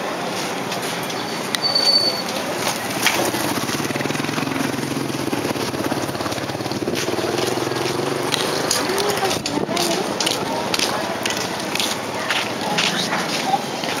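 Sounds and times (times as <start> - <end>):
street noise: 0.0 - 14.0
brief high squeak: 1.1 - 2.4
small motorcycle engine running: 2.4 - 9.9.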